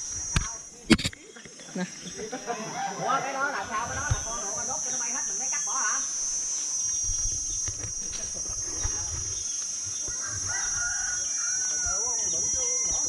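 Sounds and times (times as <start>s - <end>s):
insects chirring: 0.0s - 13.0s
rooster crowing: 2.6s - 3.6s, 10.0s - 12.9s.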